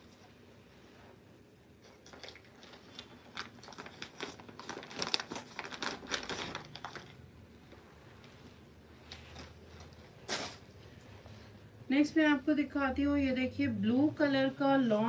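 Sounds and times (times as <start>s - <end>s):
plastic packaging crinkling: 1.9s - 7.2s.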